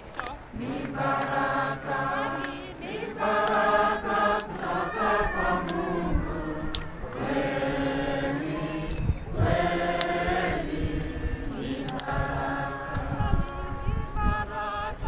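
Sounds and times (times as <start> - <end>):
hand claps: 0.1 - 1.5, 2.2 - 3.8, 4.4 - 4.8, 5.6 - 5.9, 6.7 - 8.0, 11.5 - 13.1
group singing in unison: 0.6 - 15.0.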